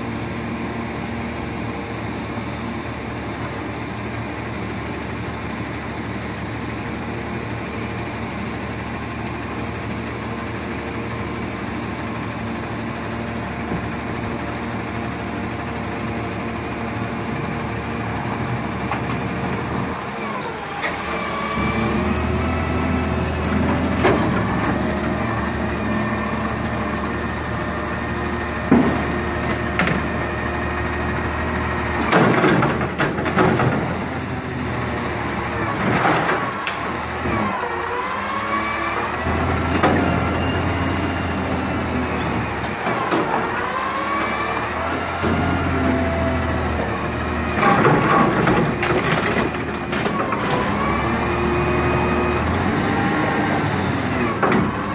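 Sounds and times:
garbage truck engine revving: 13.8s - 54.9s
container and trash banging: 28.6s - 30.2s.

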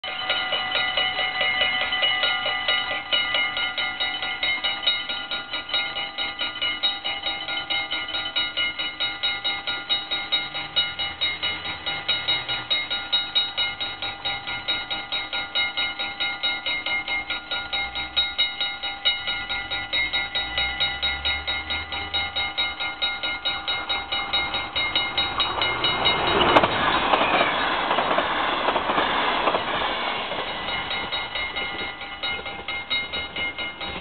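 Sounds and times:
level crossing bells ringing: 0.0s - 34.0s.

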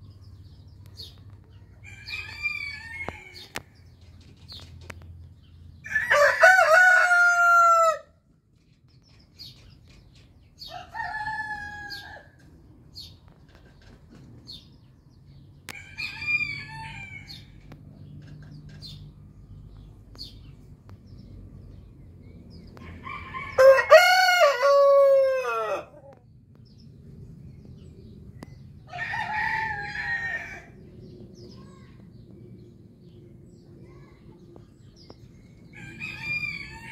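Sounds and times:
roosters crowing: 1.7s - 3.8s, 5.8s - 8.2s, 10.6s - 12.6s, 15.7s - 17.8s, 22.7s - 26.2s, 28.8s - 30.9s, 35.6s - 36.9s.

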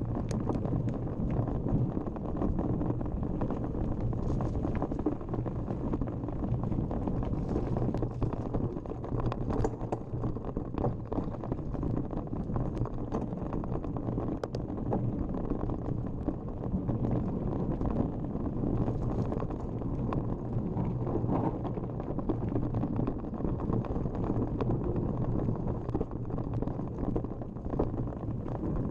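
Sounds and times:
wind on microphone: 0.0s - 28.9s
bike clicks and rattles: 9.4s - 10.2s.

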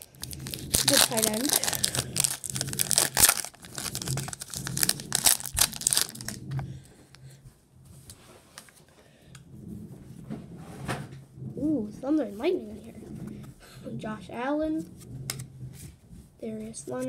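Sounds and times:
foil wrapper tearing and crinkling: 0.0s - 6.4s.

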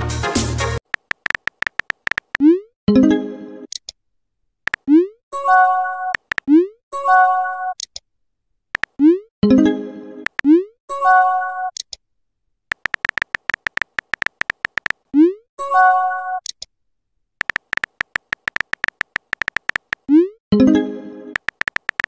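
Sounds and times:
keyboard tap clicks: 0.8s - 2.4s, 6.2s - 6.5s, 12.7s - 15.0s, 17.4s - 20.0s, 21.4s - 22.0s.

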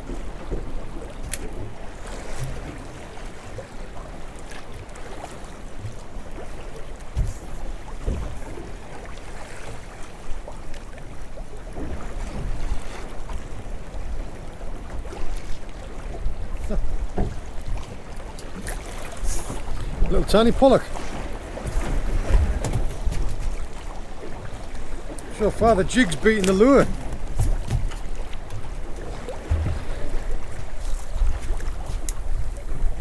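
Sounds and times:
water washing against hull: 0.0s - 33.0s
wind: 0.0s - 33.0s
dull knocks: 29.3s - 30.6s.

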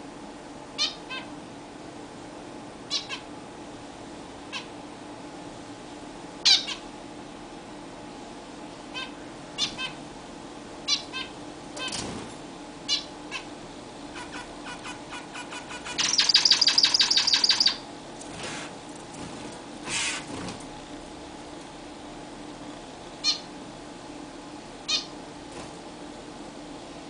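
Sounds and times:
finches calling: 2.9s - 3.2s, 10.9s - 12.0s, 12.9s - 13.5s, 14.2s - 17.8s, 23.2s - 23.5s.

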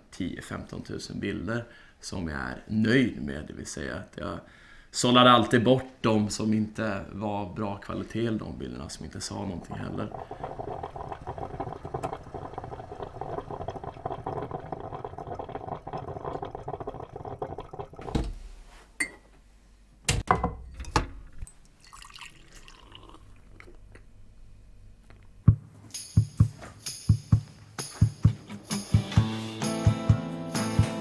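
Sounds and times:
coffee maker gurgling and bubbling: 9.2s - 18.3s, 21.8s - 23.8s.

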